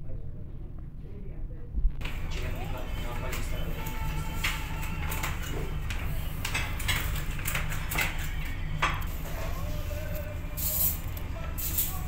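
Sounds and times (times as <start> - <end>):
steady low hum: 0.0 - 4.4
faint voices: 1.0 - 6.8, 7.8 - 12.0.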